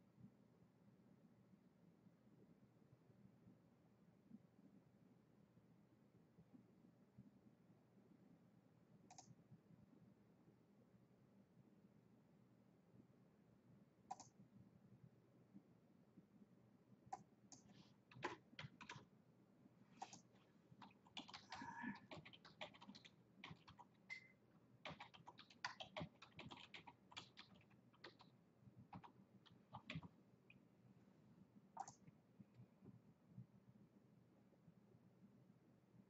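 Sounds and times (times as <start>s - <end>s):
faint keyboard typing: 9.0s - 9.4s, 14.1s - 14.5s, 17.1s - 19.2s, 19.9s - 30.6s, 31.7s - 32.7s.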